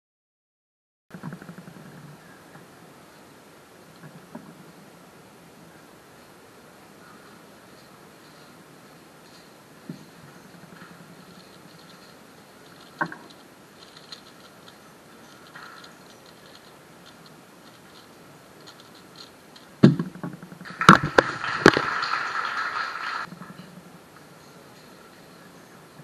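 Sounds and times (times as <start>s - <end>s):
knocks and handling clatter: 9.2s - 21.1s
speedcube clicking: 11.2s - 19.8s.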